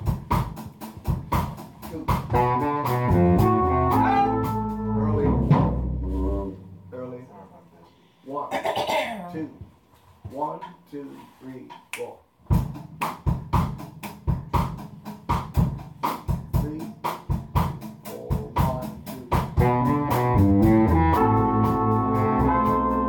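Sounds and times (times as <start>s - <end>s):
drum kit groove: 0.0s - 6.9s, 9.6s - 23.0s
bass: 0.0s - 7.9s, 11.7s - 23.0s
horns playing held chords: 2.3s - 6.8s, 19.6s - 23.0s.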